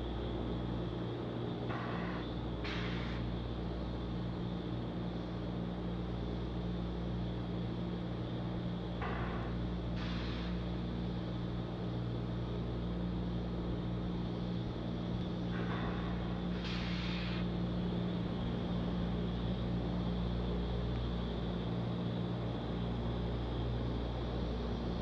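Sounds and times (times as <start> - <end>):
short hisses: 16.6 - 17.4.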